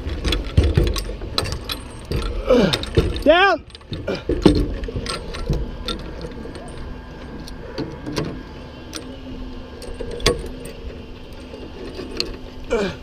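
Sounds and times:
metal gear clinking on wood: 0.0 - 7.0
low steady rumble: 0.0 - 13.0.

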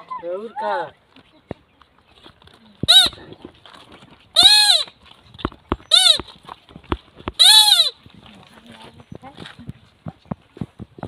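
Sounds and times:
high-pitched calls: 4.4 - 5.0, 5.8 - 6.3, 7.4 - 8.0.

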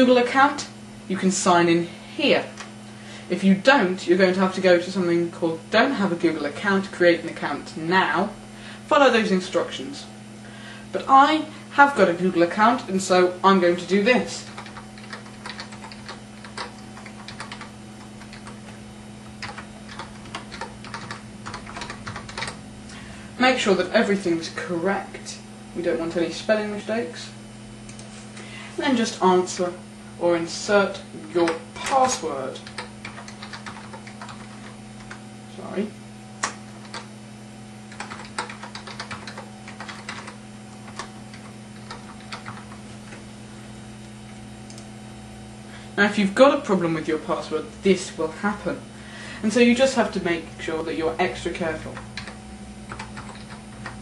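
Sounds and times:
steady low hum: 0.0 - 54.0
computer keyboard keys clicking: 14.4 - 18.8, 19.4 - 22.6, 31.5 - 35.2, 36.4 - 37.1, 37.9 - 42.8, 52.0 - 54.0.

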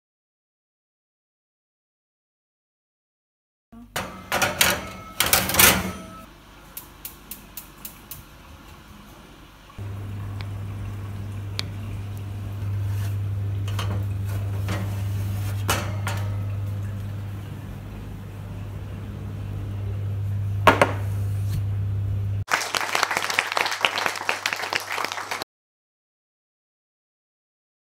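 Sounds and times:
oven humming: 3.8 - 22.4.

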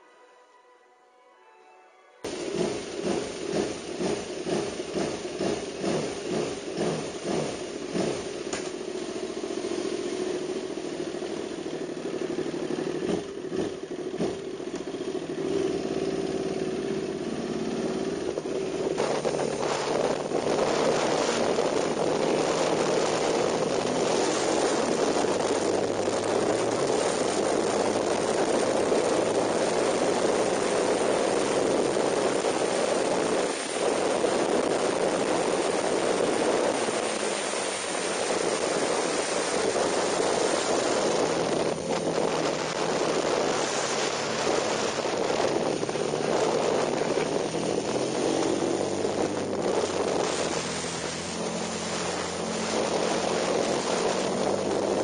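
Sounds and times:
motorcycle engine: 2.3 - 55.0
wind rush on microphone: 2.3 - 55.0.

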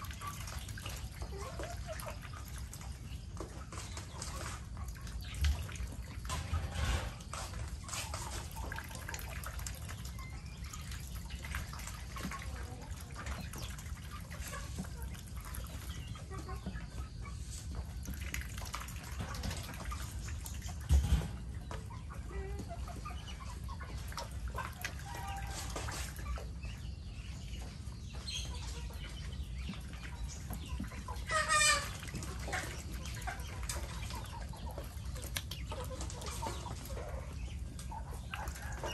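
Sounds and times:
dripping water: 0.0 - 16.4, 17.8 - 21.5
chickens clucking: 0.0 - 38.9.

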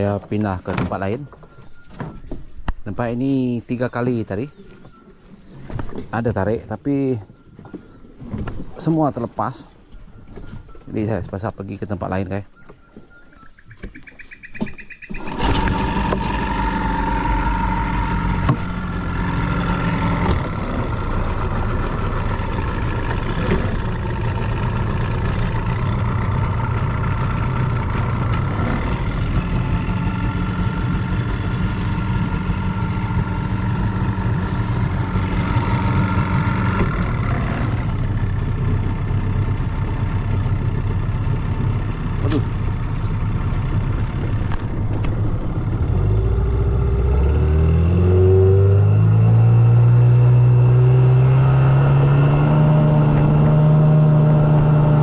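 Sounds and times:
outboard motor running: 15.0 - 55.0.

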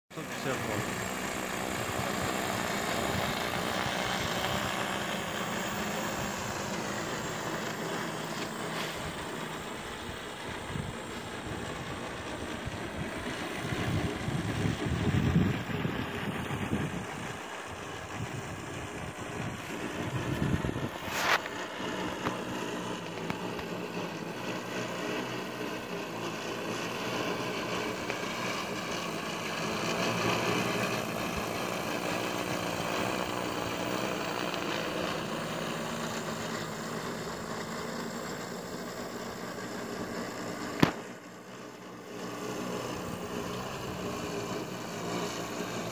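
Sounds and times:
drone propellers buzzing: 0.1 - 45.9
gusty wind rumbles: 10.0 - 21.1
sharp click: 40.8 - 41.1.

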